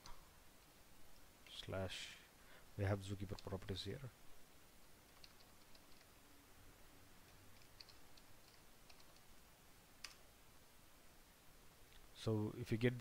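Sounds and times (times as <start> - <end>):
keyboard typing: 5.1 - 6.2, 7.2 - 9.3, 10.0 - 10.2.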